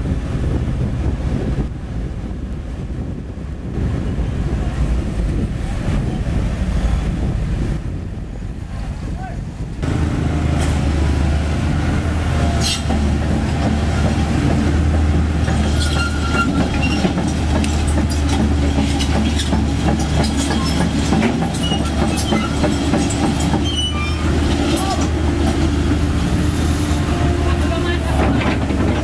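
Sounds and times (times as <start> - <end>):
diesel engine drone: 0.0 - 29.0
tracks squealing: 15.3 - 25.7.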